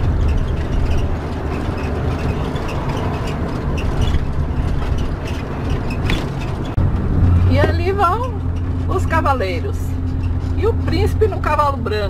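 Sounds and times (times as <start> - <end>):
small ticks and rattles: 0.0 - 6.8
engine and road drone: 0.0 - 12.0.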